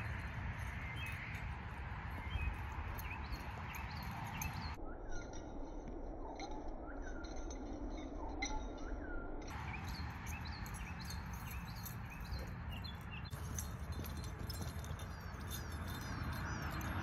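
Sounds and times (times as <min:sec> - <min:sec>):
small birds chirping: 0:00.0 - 0:04.8, 0:09.5 - 0:17.0.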